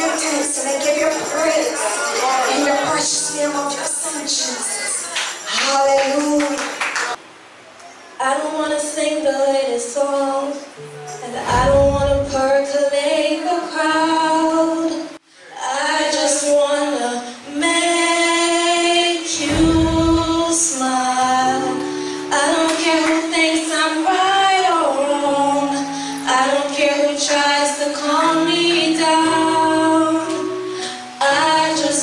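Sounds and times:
women singing gospel: 0.0s - 6.6s, 15.6s - 30.4s, 31.2s - 32.0s
low sustained bass notes: 11.2s - 12.5s, 19.4s - 20.7s
short low thump: 11.3s - 12.5s, 19.4s - 20.6s.

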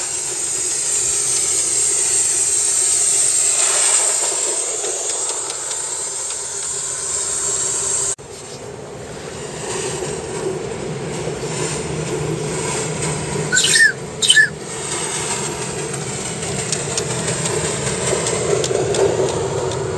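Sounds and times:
model steam locomotive running: 0.0s - 19.9s
high rising squeals: 13.5s - 16.0s.

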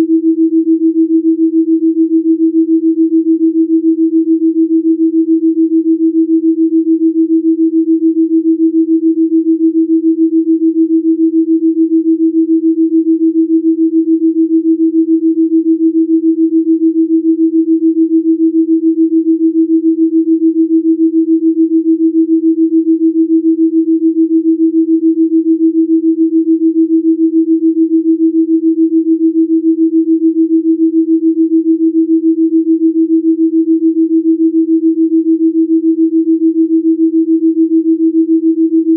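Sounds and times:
pulsing sine tone: 0.0s - 38.9s.

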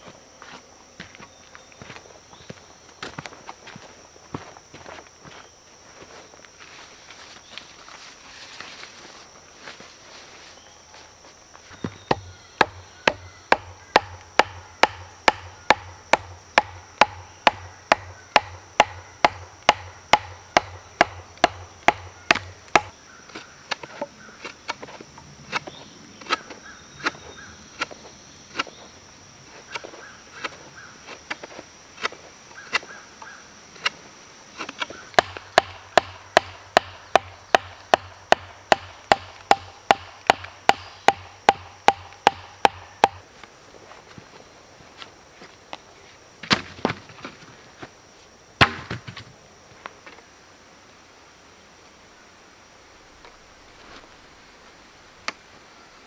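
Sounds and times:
wooden mallet pounding wooden stake: 11.9s - 22.9s, 35.2s - 43.2s, 48.6s - 49.2s.

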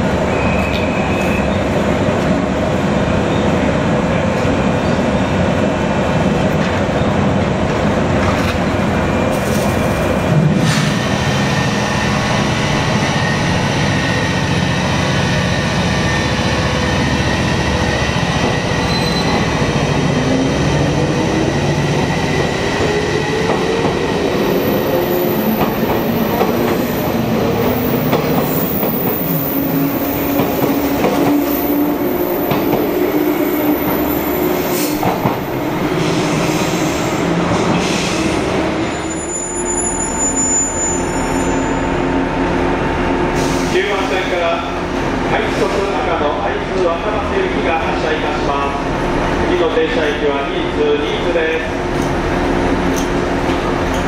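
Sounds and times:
train wheels clattering on rails: 22.0s - 26.9s, 27.6s - 29.4s, 30.2s - 31.6s, 34.9s - 35.5s.

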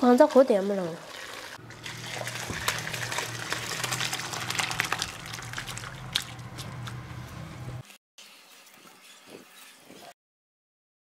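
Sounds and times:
liquid gushing into a bowl: 0.4s - 7.0s.

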